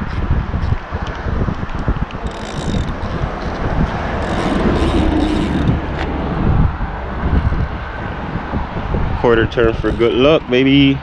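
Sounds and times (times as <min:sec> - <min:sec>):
road traffic rumbling past: 0:00.0 - 0:11.0
wind on microphone: 0:00.0 - 0:11.0
vehicle passing: 0:02.2 - 0:10.6.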